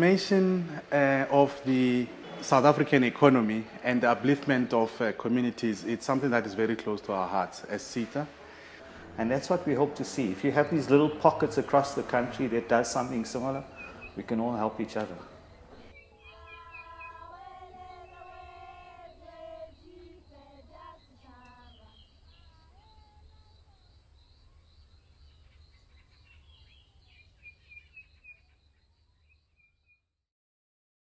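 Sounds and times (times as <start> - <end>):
birds calling and chirping: 8.5 - 23.0.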